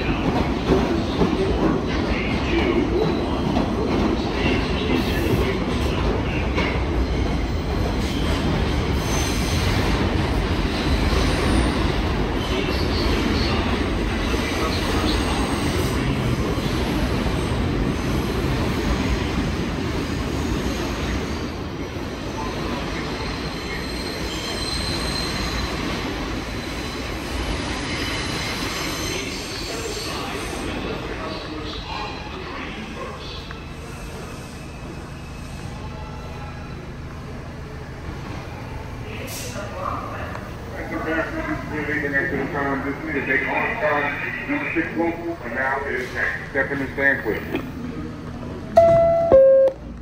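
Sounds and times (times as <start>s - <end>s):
train wheels rumbling on rail: 0.0s - 48.9s
high wheel squeals: 23.2s - 25.7s.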